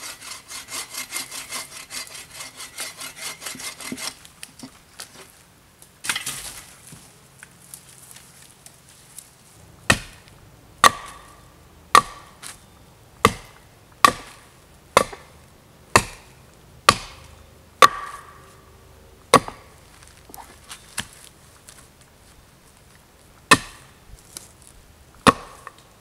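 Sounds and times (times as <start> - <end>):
blade chopping wood: 9.9 - 10.2, 10.8 - 12.5, 13.2 - 14.4, 15.0 - 15.3, 16.0 - 16.3, 16.9 - 18.4, 19.3 - 19.7, 23.5 - 23.9, 25.2 - 25.8.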